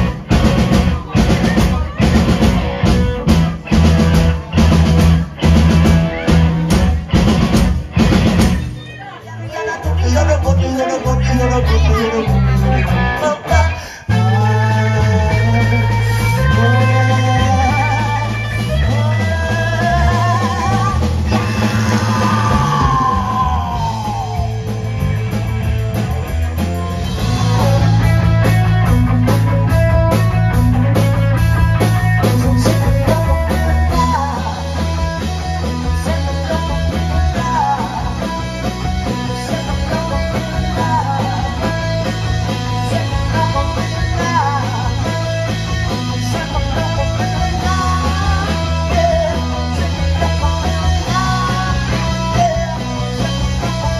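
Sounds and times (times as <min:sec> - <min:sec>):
drum kit: 0:00.0 - 0:09.2, 0:09.8 - 0:53.9
bass guitar: 0:00.0 - 0:53.9
electric guitar: 0:00.0 - 0:53.9
man singing into a microphone: 0:09.4 - 0:24.6, 0:32.3 - 0:53.9.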